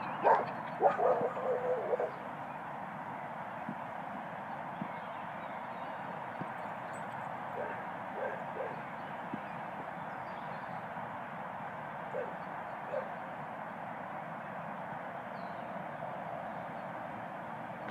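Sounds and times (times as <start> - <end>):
distant dog barks: 0.0 - 2.2, 7.5 - 8.9, 12.1 - 13.2
steady outdoor hiss: 0.0 - 17.9.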